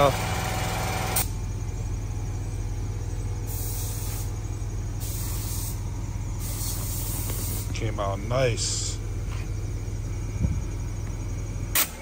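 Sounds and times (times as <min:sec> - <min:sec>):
low engine hum: 0:00.0 - 0:12.0
hissing spray bursts: 0:03.5 - 0:04.3, 0:05.0 - 0:05.8, 0:06.4 - 0:07.7.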